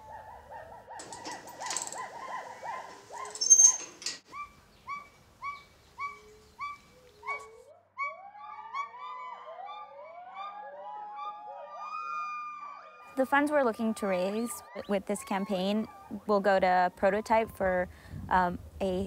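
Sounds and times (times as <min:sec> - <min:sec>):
gibbons calling: 0:04.3 - 0:11.6.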